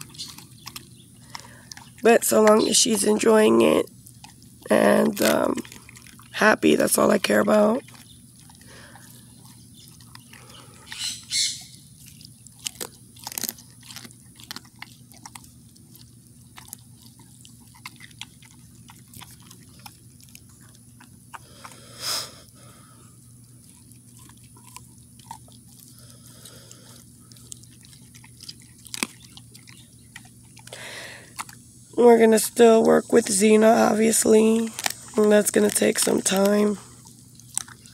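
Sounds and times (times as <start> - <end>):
dog chewing bone: 0.0 - 37.9.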